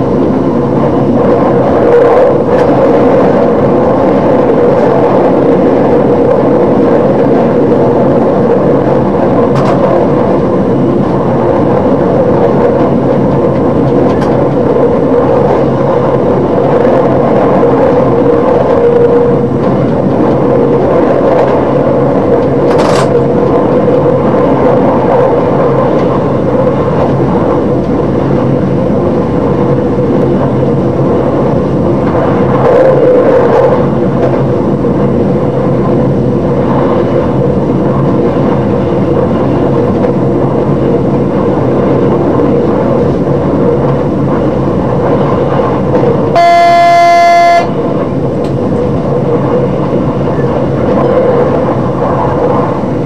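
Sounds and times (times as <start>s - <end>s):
diesel train running: 0.0s - 53.0s
train horn blast: 46.4s - 47.8s.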